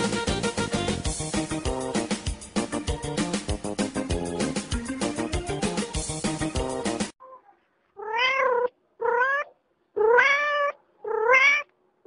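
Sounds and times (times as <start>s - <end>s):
music: 0.0s - 7.2s
cat meowing: 8.0s - 11.7s.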